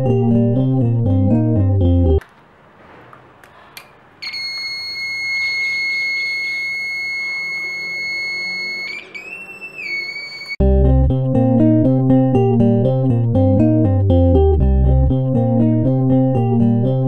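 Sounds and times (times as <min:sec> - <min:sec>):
buzzer high-pitched tone: 0:04.2 - 0:10.6.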